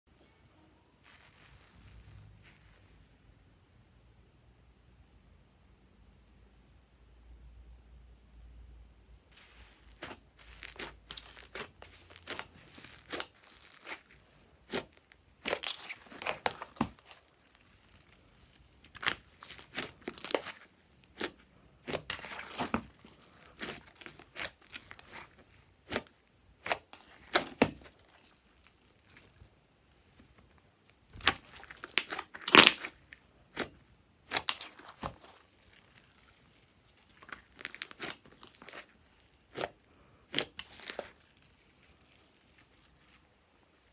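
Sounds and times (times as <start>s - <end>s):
sticky slime squelches and pops: 18.7s - 29.4s, 31.2s - 36.3s, 37.0s - 41.3s.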